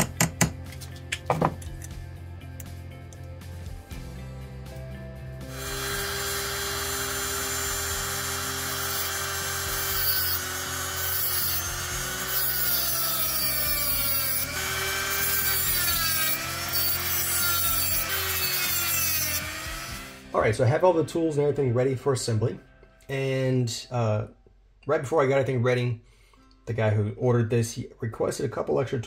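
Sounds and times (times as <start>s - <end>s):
rotary tool cutting metal: 5.5s - 20.2s.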